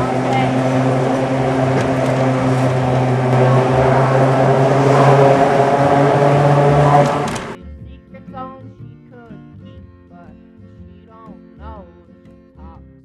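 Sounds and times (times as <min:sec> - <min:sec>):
road noise: 0:00.0 - 0:07.6
tyres humming on steel bridge: 0:00.0 - 0:07.6.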